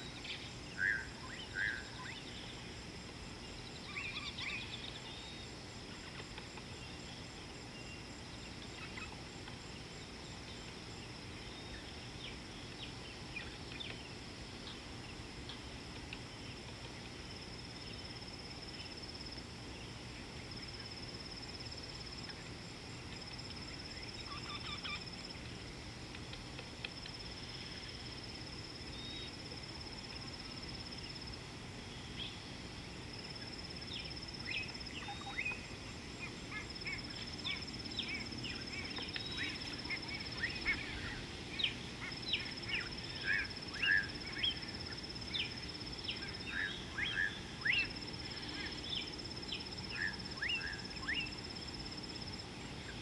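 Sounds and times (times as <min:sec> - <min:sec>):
low background hiss: 0:00.0 - 0:53.0
high-pitched insect trill: 0:20.5 - 0:25.4.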